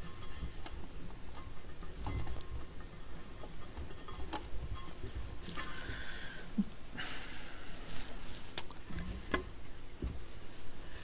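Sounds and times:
rubber mat rubbing rustle: 7.8 - 11.0.

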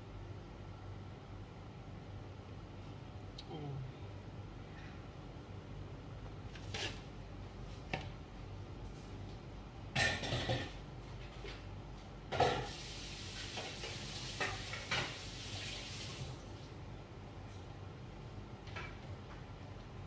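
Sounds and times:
food sizzling in a frying pan: 12.5 - 16.4
hiss: 12.7 - 16.4.

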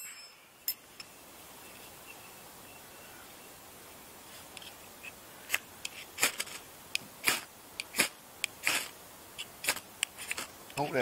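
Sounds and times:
fire steel scraping: 4.2 - 10.6.

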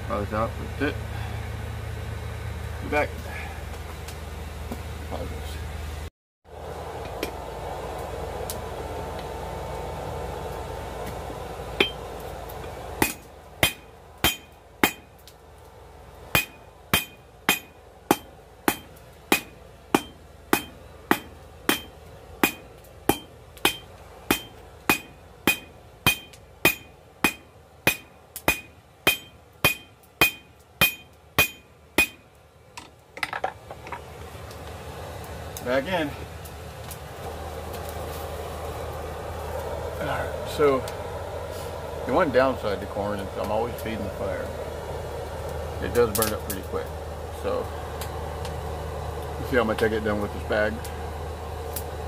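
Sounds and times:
hammer striking hot steel on anvil: 11.8 - 12.1, 13.0 - 15.2, 16.3 - 34.0.

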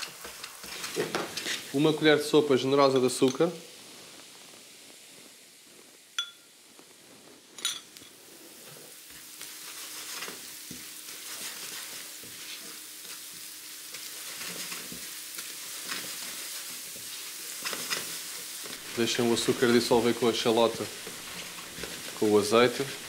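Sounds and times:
scraping against the pan: 0.0 - 1.8, 7.7 - 23.0
shallots sizzling in a pan: 0.0 - 23.0.

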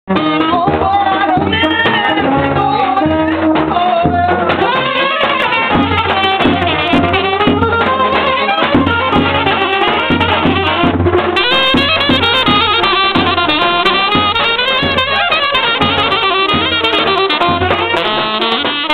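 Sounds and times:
man singing: 0.1 - 7.4
alto saxophone: 0.1 - 18.9
percussion: 0.1 - 18.9
trumpet: 0.1 - 18.9.

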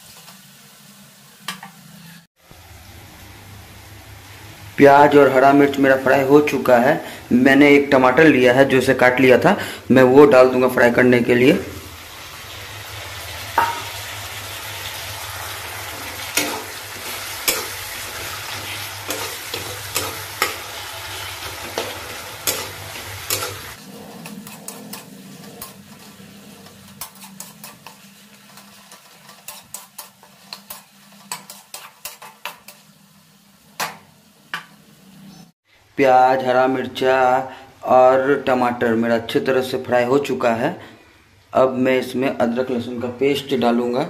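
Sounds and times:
vegetables sizzling in oil: 0.0 - 7.9, 11.1 - 35.6
spatula scraping and clicking pan: 16.3 - 18.3, 19.0 - 20.6, 21.6 - 33.0.

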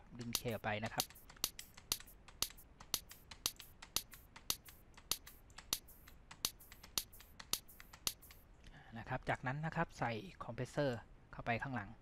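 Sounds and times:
hand-clap samples: 0.2 - 8.4.

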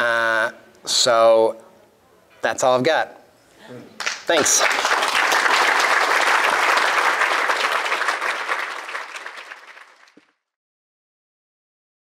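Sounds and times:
audience applauding: 4.0 - 10.4.

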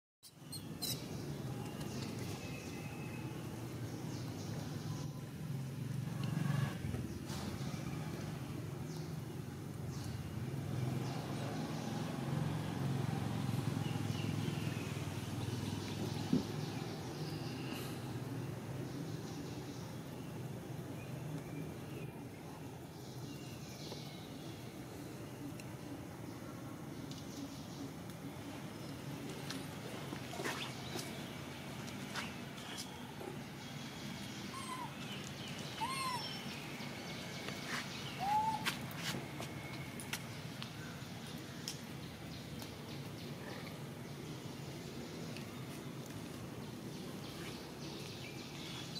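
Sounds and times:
steady outdoor hiss: 0.3 - 48.9
macaques calling: 35.8 - 36.5, 38.1 - 38.8.

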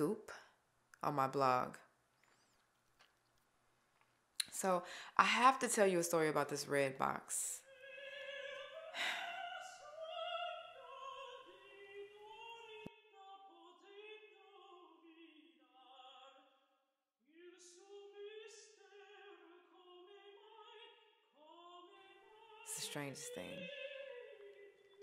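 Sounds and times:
operatic singing voice: 7.0 - 16.4, 17.3 - 25.0.

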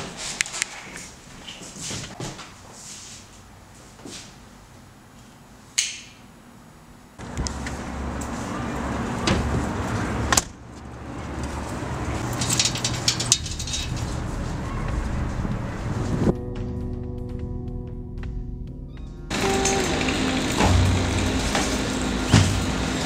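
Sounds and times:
low traffic rumble: 6.4 - 16.4, 19.2 - 23.0.

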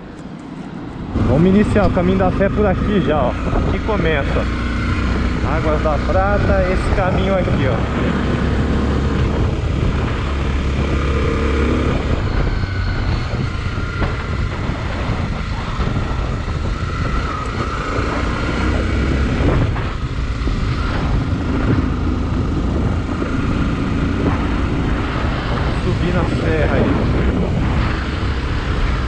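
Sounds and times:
wind and road noise: 0.0 - 29.0
motorcycle engine running: 1.2 - 29.0.

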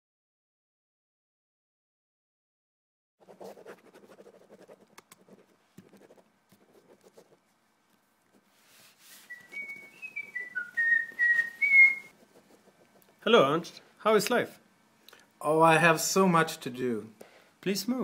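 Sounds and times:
person whistling a tune: 9.2 - 12.1.

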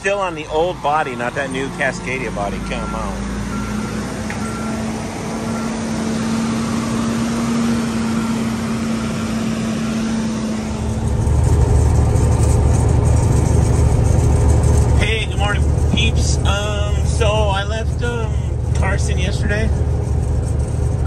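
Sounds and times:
diesel truck engines running: 0.0 - 21.0
truck engine revving: 0.0 - 21.0
faint backup alarm beeping: 2.6 - 4.8, 5.5 - 5.9.

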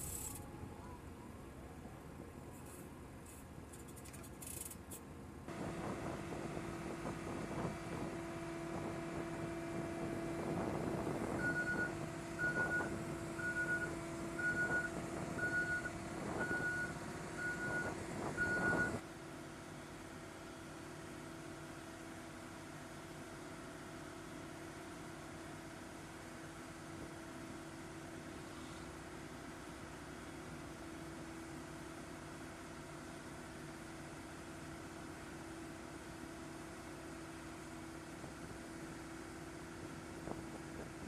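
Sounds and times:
crane engine running: 5.2 - 28.4
motion-warning beeper: 11.4 - 19.0.

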